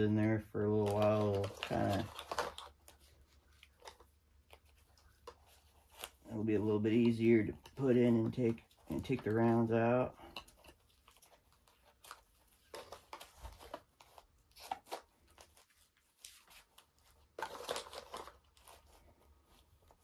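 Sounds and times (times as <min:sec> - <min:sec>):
shotgun shells rustling and clicking: 0:00.1 - 0:15.6.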